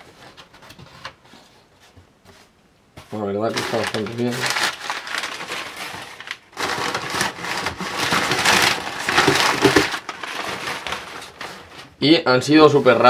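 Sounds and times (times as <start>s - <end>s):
packing paper crinkling: 3.4s - 12.0s.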